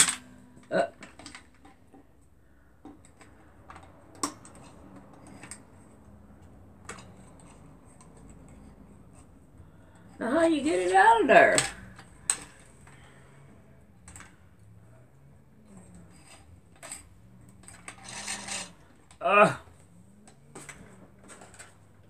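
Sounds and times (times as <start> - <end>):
plastic clatter: 0.0 - 2.1
plastic parts clicking and tapping: 0.0 - 9.3, 11.2 - 13.2.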